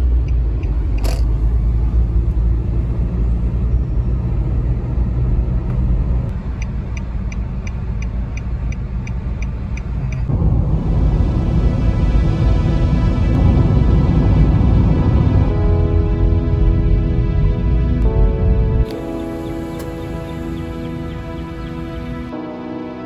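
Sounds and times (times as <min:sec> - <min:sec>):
turn signal ticking: 0:00.0 - 0:01.4, 0:06.3 - 0:10.3
car engine and road rumble: 0:00.0 - 0:22.4
music: 0:10.3 - 0:23.0.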